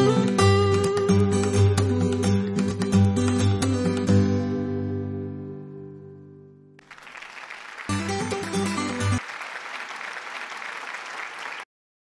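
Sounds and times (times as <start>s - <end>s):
acoustic guitar music: 0.0s - 6.6s, 7.9s - 9.2s
applause: 6.8s - 11.7s.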